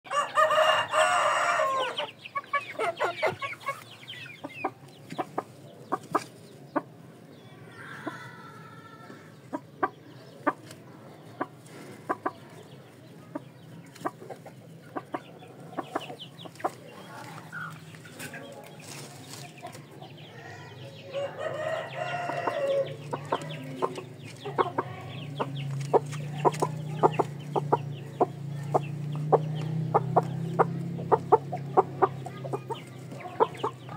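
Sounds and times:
rooster crowing: 0:00.1 - 0:02.2, 0:21.1 - 0:23.0
chickens clucking: 0:00.1 - 0:33.9.

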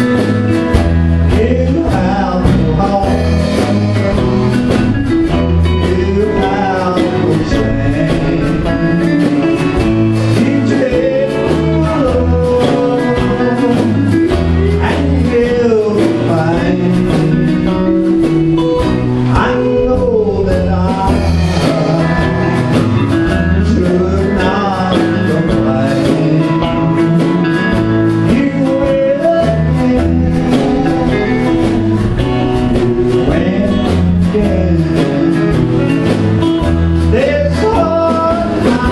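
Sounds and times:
acoustic and electric guitars: 0:00.0 - 0:38.9
bass line: 0:00.0 - 0:38.9
man singing into a microphone: 0:00.0 - 0:38.9.

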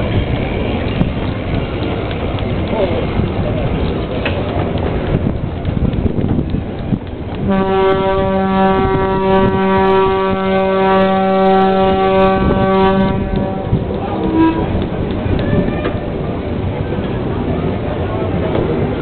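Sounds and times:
steam lorry rumbling past: 0:00.0 - 0:19.0
steam whistle blowing: 0:07.5 - 0:14.7.

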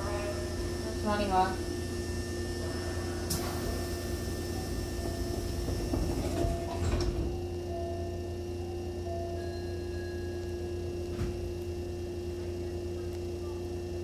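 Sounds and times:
steady electrical hum: 0:00.0 - 0:14.0
train doors thud shut: 0:05.0 - 0:07.4.

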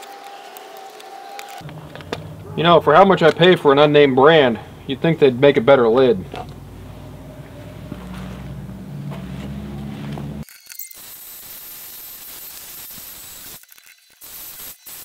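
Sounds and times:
low steady hum: 0:01.6 - 0:10.4.

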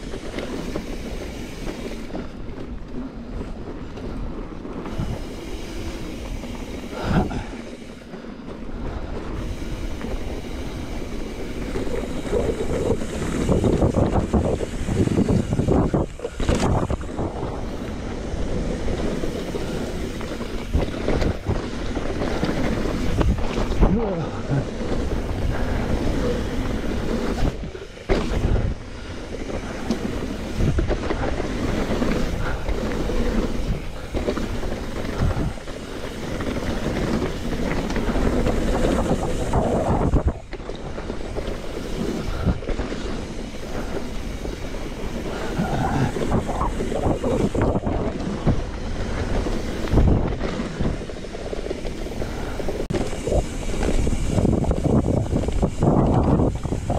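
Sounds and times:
bike knocking and clattering: 0:00.0 - 0:56.9
wind rushing over microphone: 0:04.6 - 0:07.9, 0:08.9 - 0:56.9.

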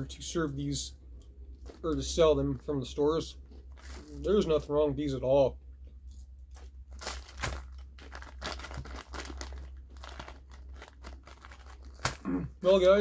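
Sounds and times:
steady low hum: 0:00.0 - 0:13.0
plastic snack bag crinkling: 0:01.6 - 0:02.2, 0:03.7 - 0:04.5, 0:06.5 - 0:13.0.

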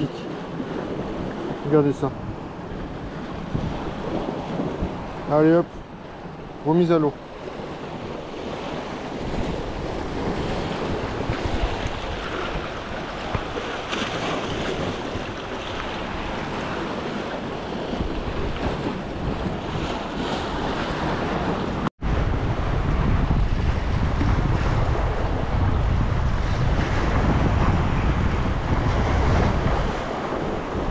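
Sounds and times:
wind rumbling on microphone: 0:00.0 - 0:30.9
waves washing on rocky shore: 0:06.2 - 0:21.9.

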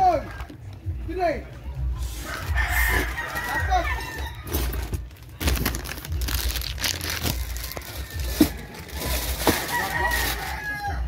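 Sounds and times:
plastic crinkling: 0:04.6 - 0:10.6.

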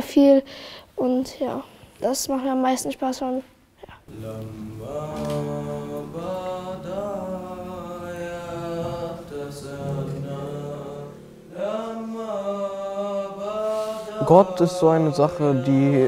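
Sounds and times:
voices singing chant-like melody: 0:04.1 - 0:16.0.

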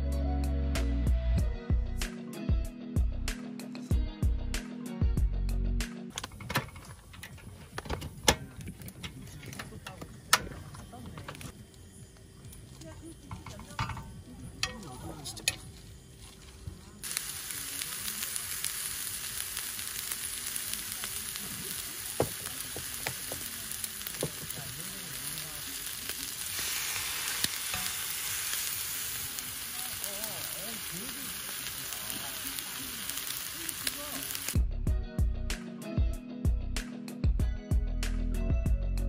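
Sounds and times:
meat sizzling on griddle pan: 0:17.0 - 0:34.6.

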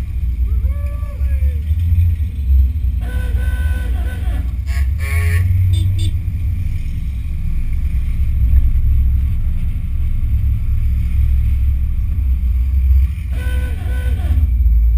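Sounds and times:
car engine rumble: 0:00.0 - 0:14.9
wind noise: 0:04.3 - 0:14.9.

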